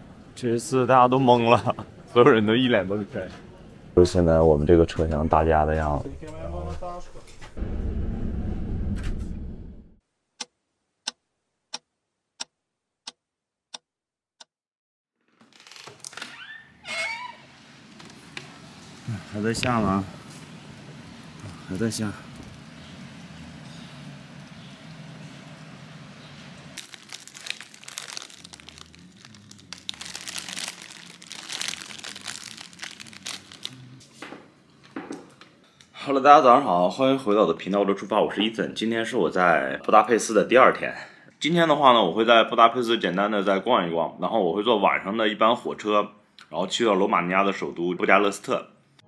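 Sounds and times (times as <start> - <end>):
crinkling and rustling: 15.3 - 16.4, 17.5 - 24.6, 26.4 - 35.9.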